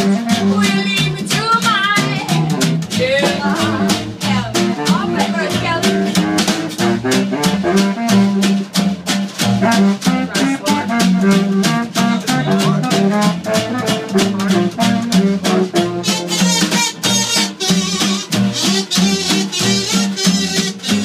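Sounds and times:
horn-like lead melody: 0.0 - 1.0, 2.4 - 21.0
snare drum beat: 0.0 - 21.0
upright bass walking line: 0.0 - 21.0.

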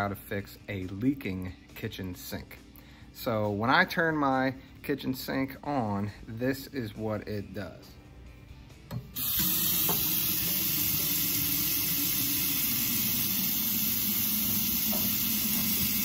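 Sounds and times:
faucet turned on: 9.2 - 16.0
water running into sink: 9.2 - 16.0.

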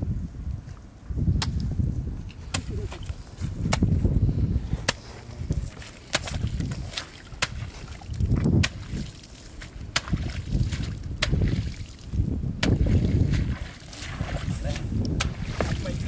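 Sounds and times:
hoe chopping into wet ground: 4.8 - 5.1, 5.7 - 12.0, 12.6 - 16.0.

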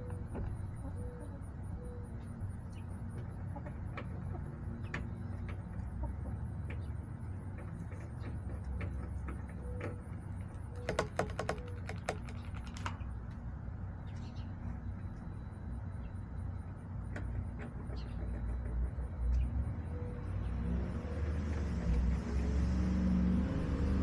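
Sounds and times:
hens clucking: 0.0 - 10.0.

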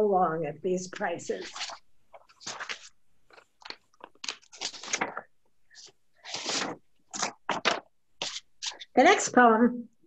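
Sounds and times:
paper rustling and crinkling: 1.3 - 8.9.

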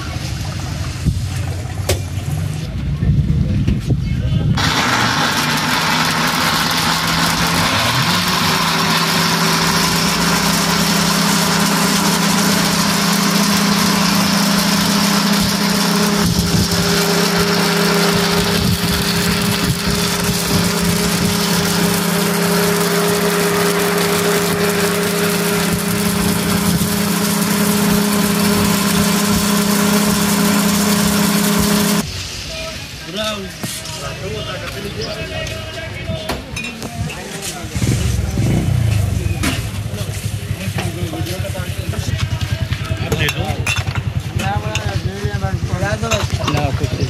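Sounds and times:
blender motor running: 4.6 - 32.0.

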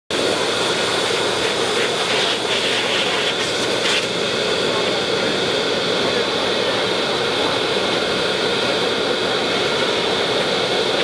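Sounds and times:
grooming dryer blowing air: 0.1 - 11.0.

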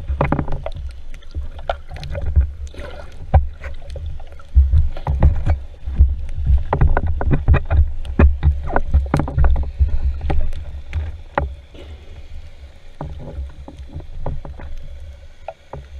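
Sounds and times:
underwater rumble of moving water: 0.0 - 15.9
sharp clicks and knocks: 3.3 - 11.6.

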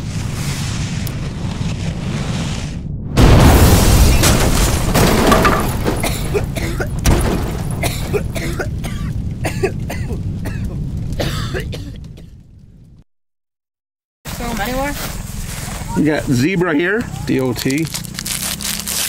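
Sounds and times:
deep explosion boom: 0.0 - 13.0
sharp crackles and pops: 0.0 - 13.0, 14.4 - 19.0.

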